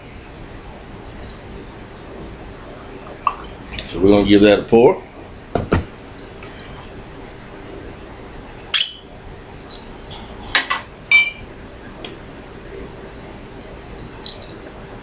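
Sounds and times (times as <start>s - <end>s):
glass clinking: 10.6s - 11.5s.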